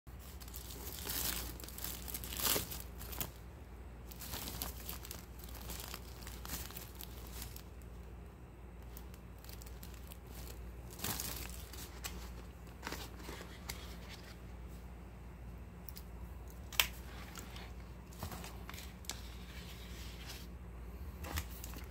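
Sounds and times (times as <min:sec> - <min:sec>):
plastic wrap crinkling: 0:00.1 - 0:08.1, 0:08.8 - 0:14.4.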